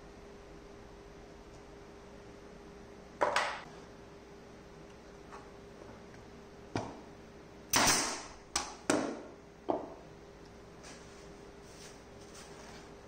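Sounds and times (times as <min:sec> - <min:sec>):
nail gun firing into wood: 0:07.7 - 0:08.4.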